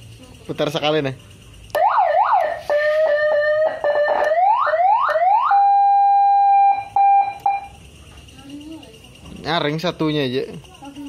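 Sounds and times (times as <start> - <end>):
electronic siren whoops and tones: 1.8 - 7.7.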